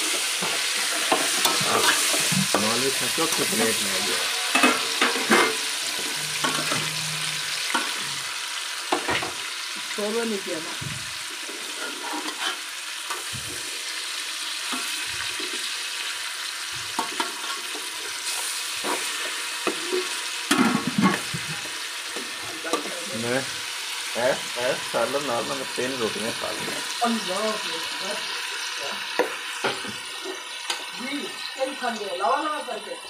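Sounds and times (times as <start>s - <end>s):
onions sizzling in oil: 0.0s - 33.0s
metal ladle scraping pot: 0.1s - 2.7s, 3.3s - 8.2s, 11.4s - 12.7s.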